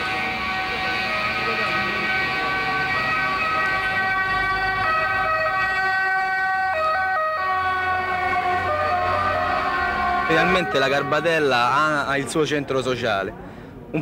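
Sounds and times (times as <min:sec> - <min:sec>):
sustained electronic chord: 0:00.0 - 0:04.9.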